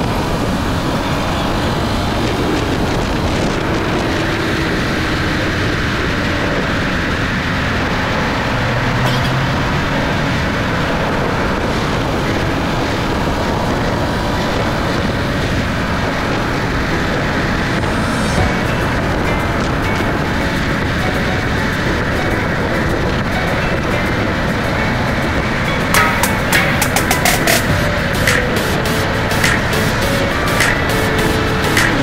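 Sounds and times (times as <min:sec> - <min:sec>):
car engine humming: 0:00.0 - 0:32.0
tyre and road noise: 0:00.0 - 0:32.0.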